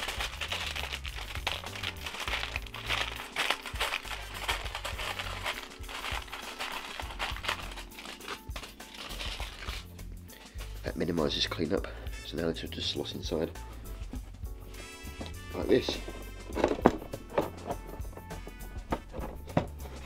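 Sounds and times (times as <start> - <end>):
aluminium foil crinkling: 0.0 - 10.4
background music: 0.0 - 20.0.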